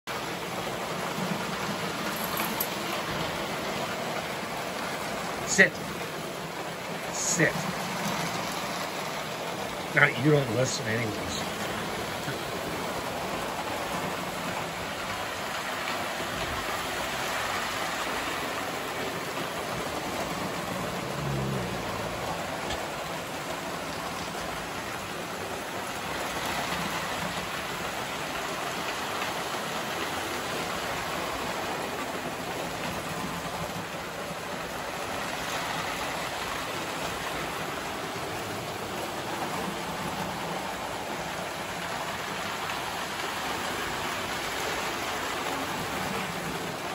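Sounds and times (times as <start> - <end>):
toy trains rolling on track: 1.2 - 3.3.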